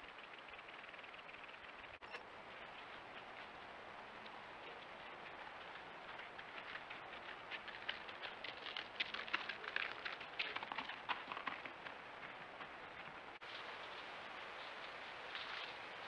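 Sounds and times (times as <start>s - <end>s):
faint steady hiss: 0.0s - 16.0s
footsteps crunching in snow: 11.8s - 16.0s.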